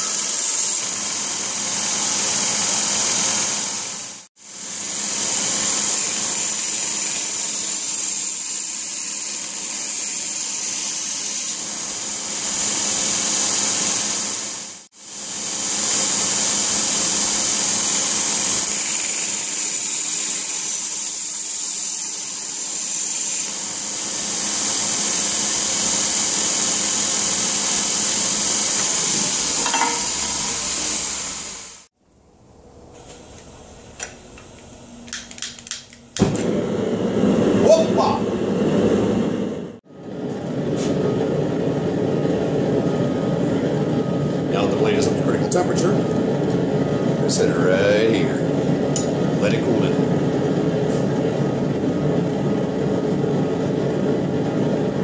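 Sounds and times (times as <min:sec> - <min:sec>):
belt grinder hissing: 0:00.0 - 0:31.9.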